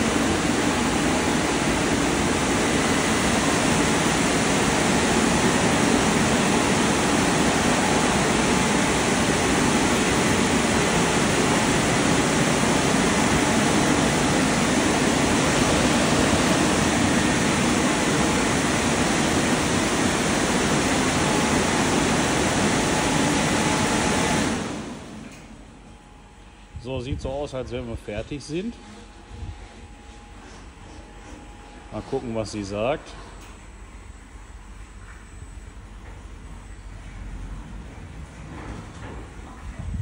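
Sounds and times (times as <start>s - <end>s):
car wash air blowers rushing: 0.0s - 25.6s.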